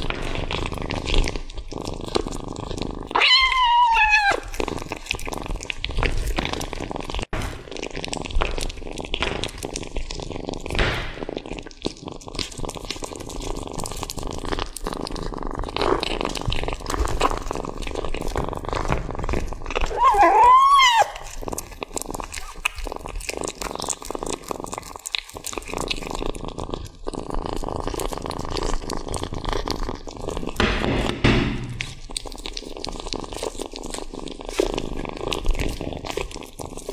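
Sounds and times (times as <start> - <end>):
kitten chewing meat and bone: 0.0 - 36.9
kitten mewing: 3.1 - 4.8, 19.8 - 21.5, 22.2 - 23.0.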